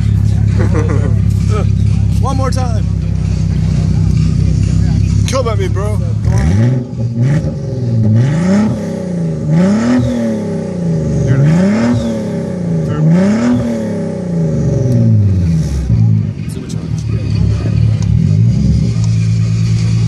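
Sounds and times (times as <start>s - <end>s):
car engine revving: 0.0s - 20.0s.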